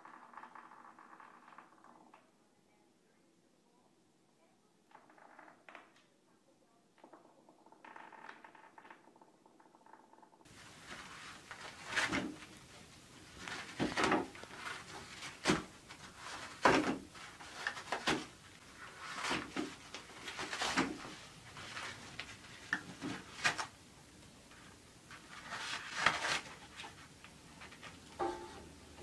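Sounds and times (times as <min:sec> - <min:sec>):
paper rustling and tearing: 0:10.6 - 0:12.5, 0:13.3 - 0:23.7, 0:25.1 - 0:27.9.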